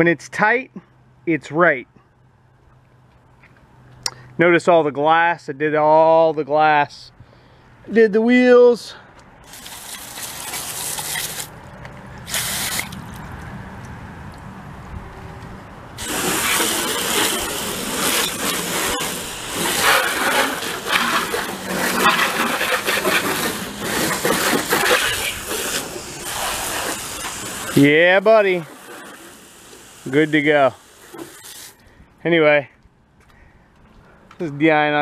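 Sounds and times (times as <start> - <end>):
hose nozzle spraying water: 9.4 - 13.3, 16.0 - 31.8.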